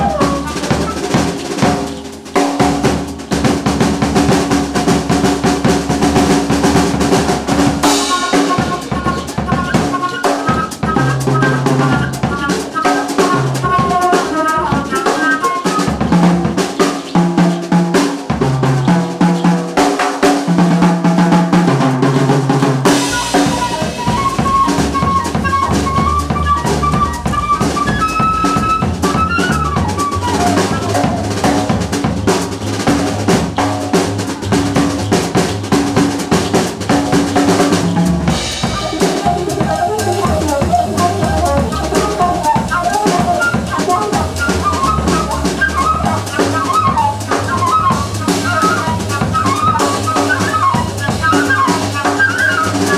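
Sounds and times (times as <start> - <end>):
bass line: 0.0 - 2.0, 20.6 - 51.1
wind instrument melody: 0.0 - 19.8, 20.6 - 52.9
drum kit played busily: 0.0 - 52.9.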